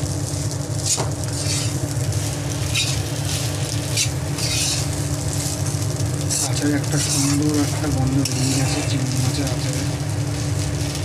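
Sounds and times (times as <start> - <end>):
rice sizzling in oil: 0.0 - 11.0
steady low hum: 0.0 - 11.0
spatula scraping frying pan: 0.8 - 9.1.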